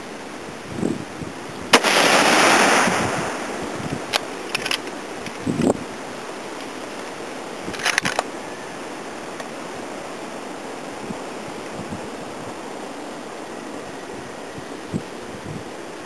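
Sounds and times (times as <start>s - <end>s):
rifle shot: 1.7s - 3.6s.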